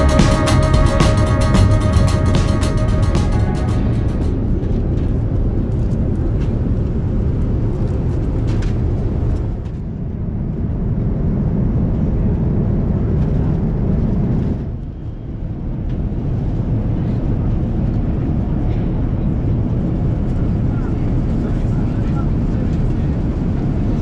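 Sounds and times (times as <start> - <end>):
airliner engine rumble in cabin: 5.7 - 24.0.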